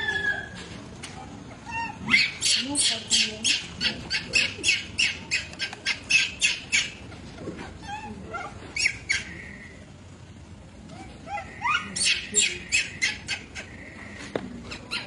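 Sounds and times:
baby monkey screaming: 1.6 - 7.0, 11.0 - 13.8.

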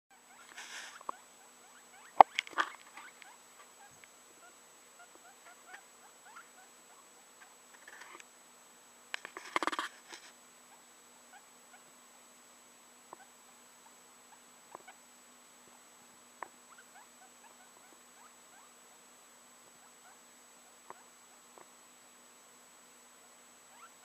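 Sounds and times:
small rodent scratching: 0.2 - 4.1, 5.0 - 8.2, 9.2 - 10.4.

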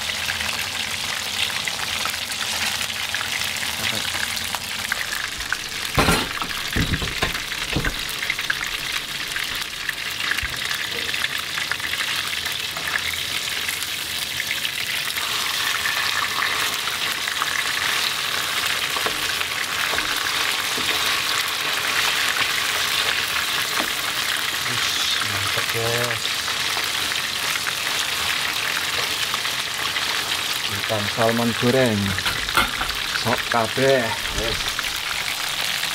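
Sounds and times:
fish sizzling in hot oil: 0.0 - 35.9
knocks in frying pan: 5.4 - 9.4, 32.2 - 33.5.

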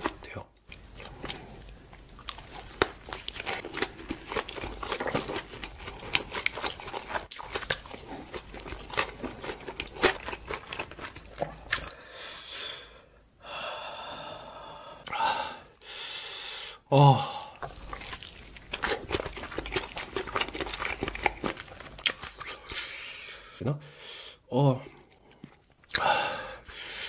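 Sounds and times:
wet crunchy chewing: 0.8 - 12.0, 17.6 - 22.8.

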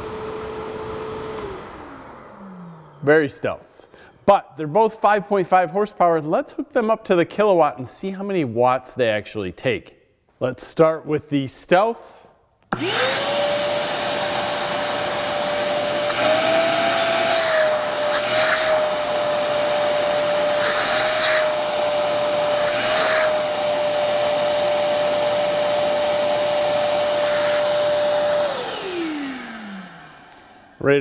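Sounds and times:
shop vacuum motor whining: 0.0 - 4.2, 12.7 - 31.0.

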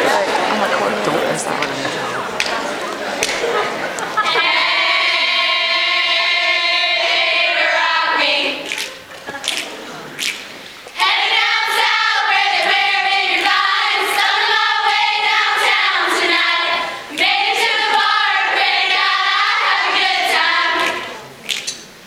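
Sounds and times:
women's choir singing: 3.6 - 9.4, 10.9 - 21.4.

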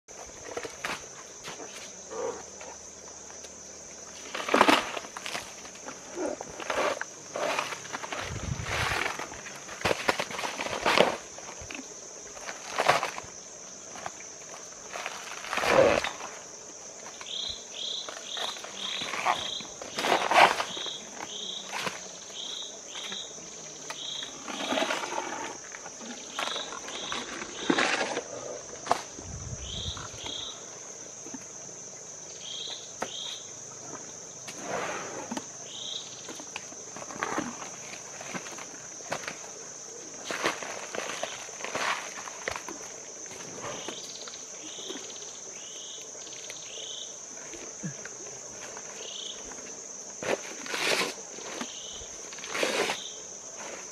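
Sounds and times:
elephant crunching banana stalks: 14.9 - 16.2.

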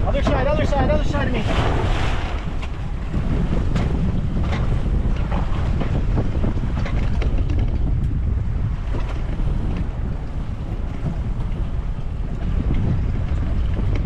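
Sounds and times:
water slapping against boat hull: 0.0 - 14.0
wind buffeting microphone: 0.0 - 14.0
sharp splashes or knocks: 1.4 - 2.9.

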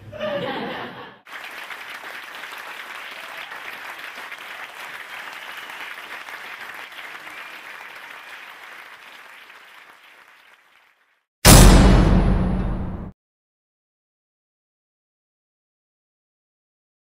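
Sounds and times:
audience applauding: 1.2 - 11.2.

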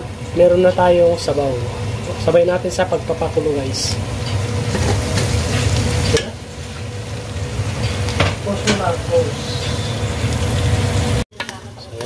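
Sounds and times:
garlic sizzling in a pan: 0.0 - 12.0.

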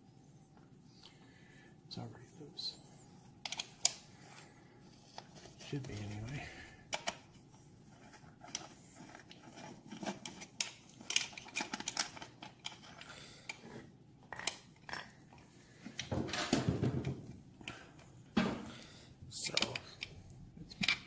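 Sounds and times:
metal parts rattling: 8.4 - 13.1.

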